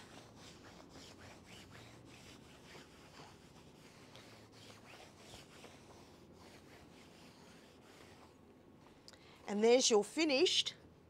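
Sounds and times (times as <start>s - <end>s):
iron rubbing over fabric: 0.0s - 8.4s.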